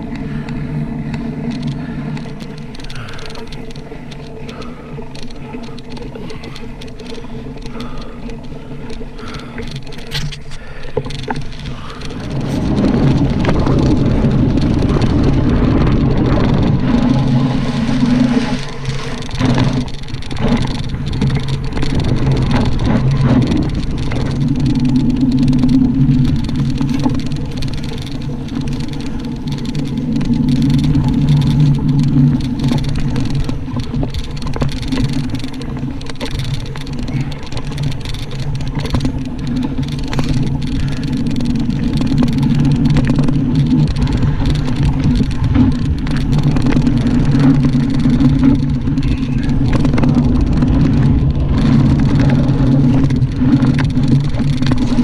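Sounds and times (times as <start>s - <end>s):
bike tyres rumbling on dirt: 0.0s - 55.0s
wind on microphone: 11.3s - 55.0s.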